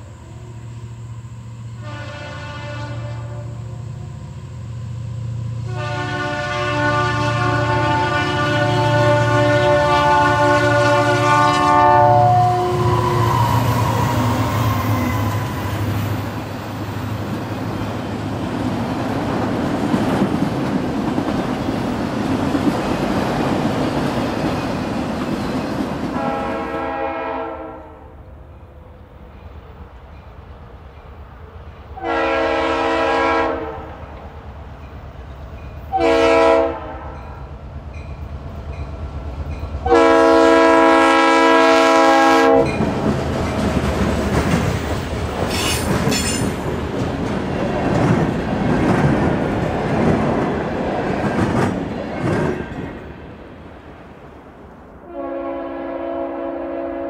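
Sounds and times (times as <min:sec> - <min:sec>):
locomotive air horn blasts: 0:01.8 - 0:03.8, 0:05.6 - 0:15.7, 0:26.1 - 0:28.1, 0:32.0 - 0:34.0, 0:35.9 - 0:37.2, 0:39.8 - 0:42.8, 0:55.0 - 0:57.0
train wheels clicking over rail joints: 0:42.7 - 0:53.1.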